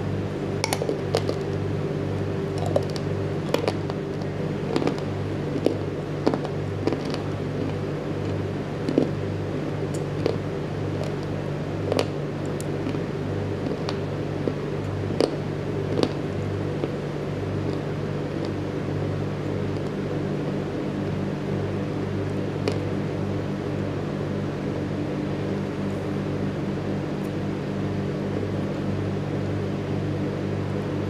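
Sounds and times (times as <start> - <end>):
rhythmically pulsing hum: 0.0 - 31.0
clay pieces crunching when chewed: 0.6 - 1.6, 2.5 - 17.0, 17.6 - 18.6.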